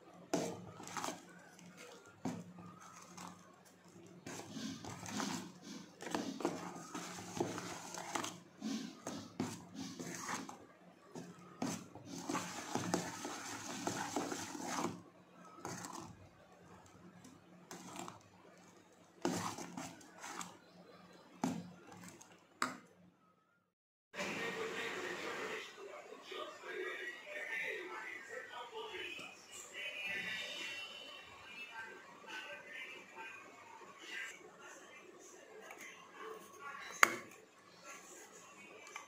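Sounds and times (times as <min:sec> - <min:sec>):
batter slapping and squelching: 0:00.2 - 0:16.3, 0:19.2 - 0:22.6.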